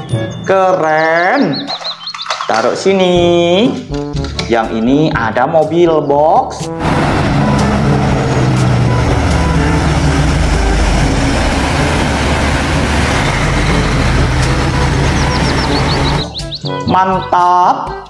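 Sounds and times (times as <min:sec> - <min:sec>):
truck diesel engine: 0:06.6 - 0:16.6
tyres on wet road: 0:06.8 - 0:16.4.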